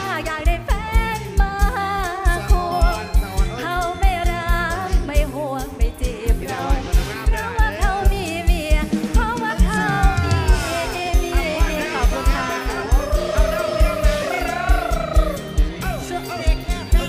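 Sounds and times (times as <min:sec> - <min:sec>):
woman singing: 0:00.0 - 0:13.2
live band playing: 0:00.0 - 0:17.0
heavy kick drum beat: 0:00.3 - 0:17.0.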